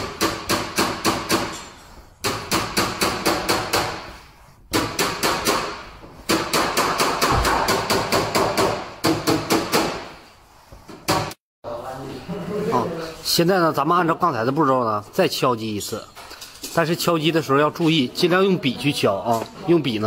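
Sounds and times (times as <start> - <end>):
hammer tapping sheet metal: 0.0 - 10.2.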